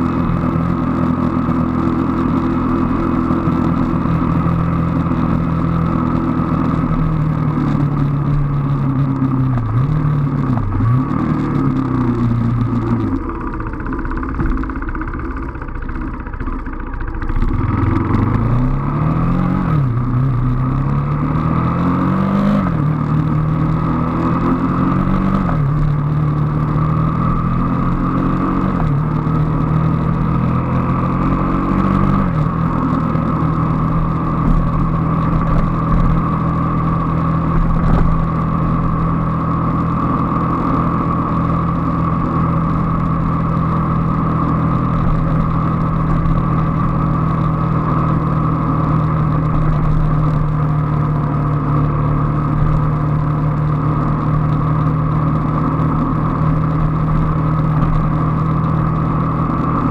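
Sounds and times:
motorcycle engine accelerating: 0.0 - 59.9.

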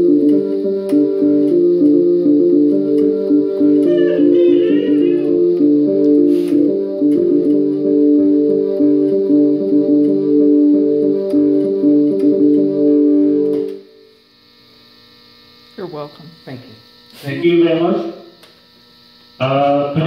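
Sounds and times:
electronic keyboard playing: 0.0 - 14.1
faint hum: 0.0 - 20.0.

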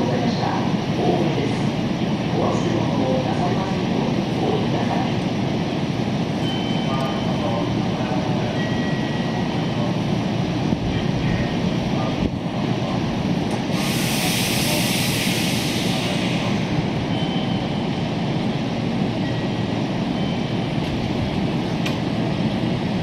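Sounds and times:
compressed air hiss: 13.7 - 16.5.

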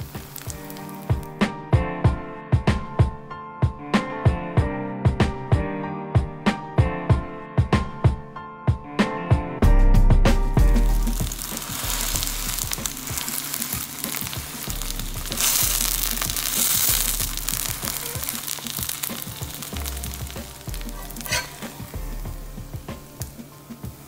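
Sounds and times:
pancake sizzling in oil: 0.0 - 1.3, 10.6 - 24.0
metal spatula against pan: 20.6 - 22.0.

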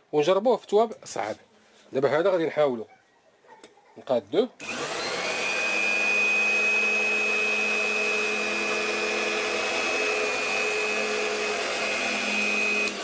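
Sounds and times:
electric cloth cutter whining: 4.6 - 13.0.

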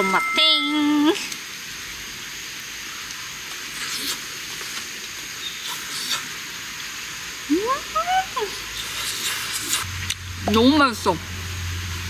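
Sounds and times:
meat sizzling in a pan: 0.1 - 10.4.

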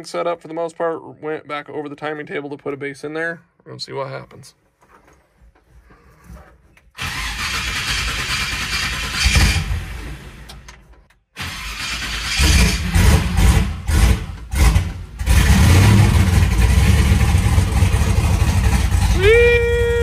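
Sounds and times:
car engine starting and running: 7.0 - 20.0.

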